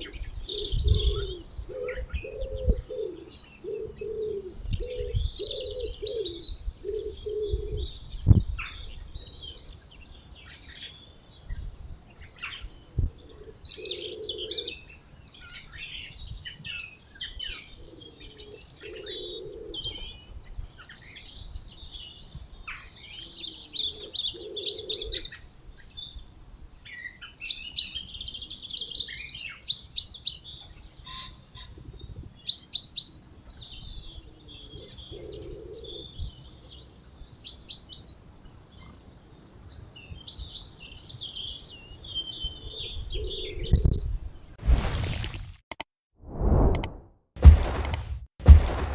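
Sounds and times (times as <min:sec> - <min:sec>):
low dove cooing: 0:00.0 - 0:08.0, 0:13.0 - 0:14.9, 0:17.4 - 0:20.2, 0:23.3 - 0:25.4, 0:34.4 - 0:36.2, 0:42.6 - 0:44.0
songbirds chirping and trilling: 0:00.0 - 0:44.6
sharp click: 0:46.6 - 0:48.9.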